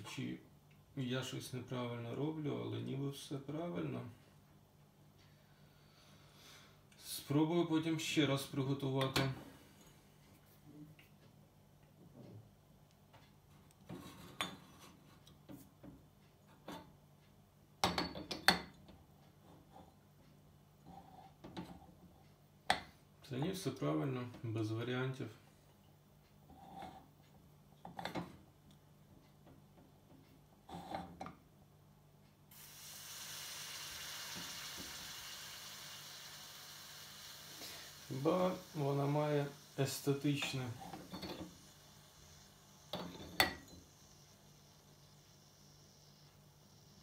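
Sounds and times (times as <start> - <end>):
coffee maker sizzling hiss: 32.5 - 47.0.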